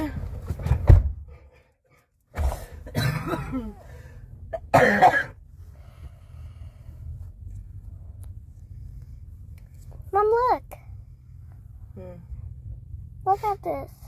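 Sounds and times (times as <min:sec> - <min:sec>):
person coughing: 0:02.5 - 0:03.8, 0:04.5 - 0:05.4
person clearing throat: 0:02.8 - 0:03.8, 0:04.6 - 0:05.4.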